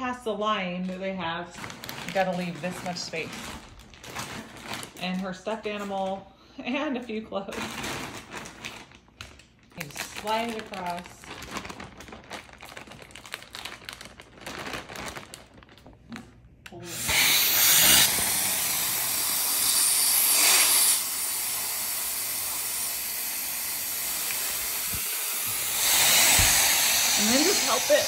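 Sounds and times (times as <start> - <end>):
plastic bag crinkling: 0.8 - 6.2, 7.5 - 16.4
vacuum cleaner hissing: 16.8 - 28.0.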